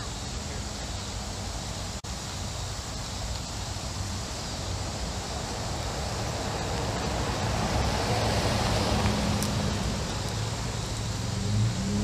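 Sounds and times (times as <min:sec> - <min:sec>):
truck driving past: 0:05.9 - 0:12.0.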